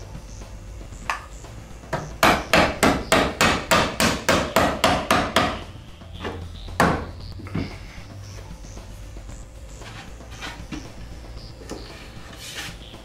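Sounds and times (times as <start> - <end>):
rubber mallet knocking on wood: 6.8 - 7.1.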